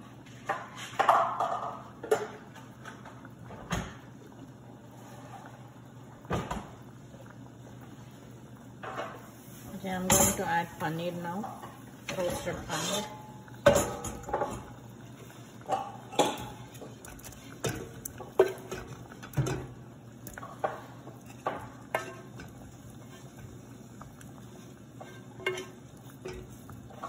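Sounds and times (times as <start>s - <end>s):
pan rim clinking against pot: 25.0s - 27.0s.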